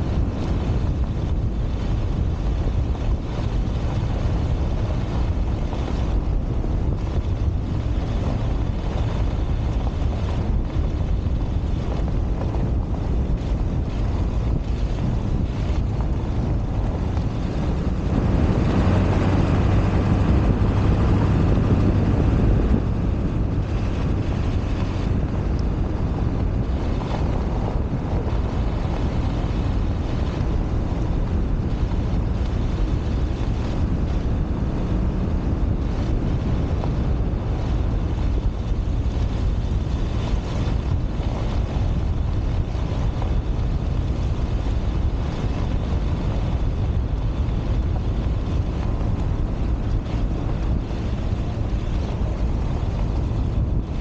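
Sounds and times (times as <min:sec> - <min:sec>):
truck engine hum: 0:00.0 - 0:54.0
wind on microphone: 0:00.0 - 0:54.0.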